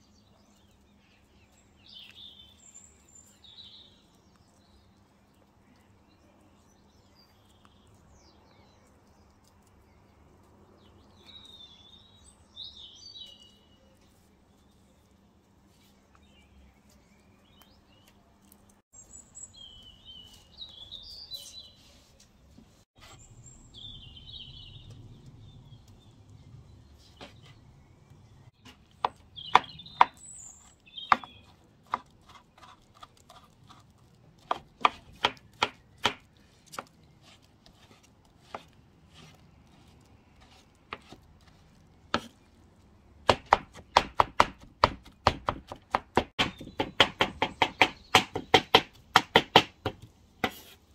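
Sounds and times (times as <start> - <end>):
knife chopping on wooden board: 28.6 - 30.2, 31.1 - 33.8, 34.4 - 39.4, 40.4 - 41.2, 42.1 - 42.4, 43.2 - 50.8.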